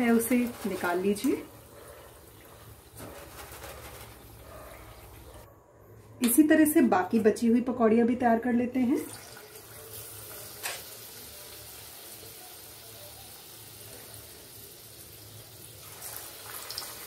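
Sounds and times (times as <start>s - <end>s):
pakoras sizzling in hot oil: 0.0s - 5.3s, 9.0s - 17.0s.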